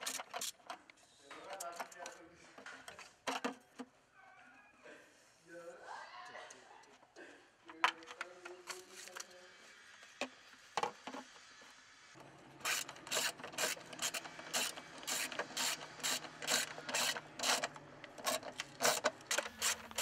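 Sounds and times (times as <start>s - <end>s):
ratchet wrench clicking: 12.6s - 20.0s.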